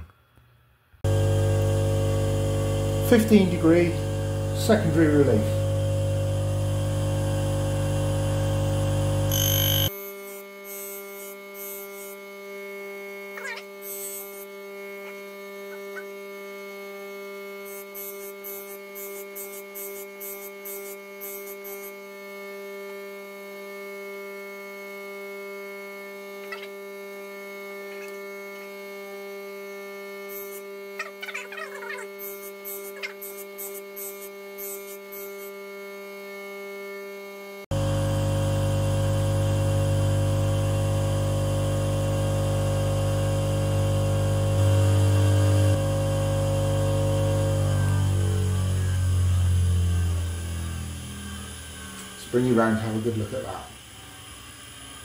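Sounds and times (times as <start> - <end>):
grinder motor humming: 1.0 - 55.0
high grinding hiss: 9.3 - 12.2, 13.8 - 14.5, 17.5 - 22.0, 30.3 - 30.7, 32.2 - 35.5.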